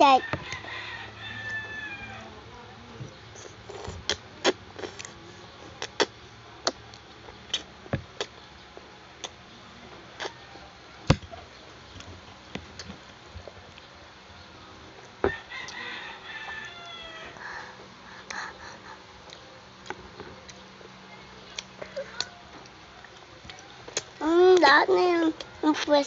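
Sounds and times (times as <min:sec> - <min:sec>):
children slurping and chewing: 0:03.4 - 0:08.4, 0:17.3 - 0:20.6, 0:21.6 - 0:26.0
mouth clicks and smacks: 0:03.7 - 0:05.2, 0:05.8 - 0:08.4, 0:21.6 - 0:24.2.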